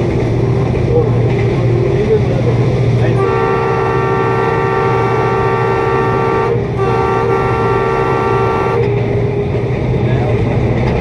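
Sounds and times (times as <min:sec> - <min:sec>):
locomotive air horn blasts: 0:03.1 - 0:09.1.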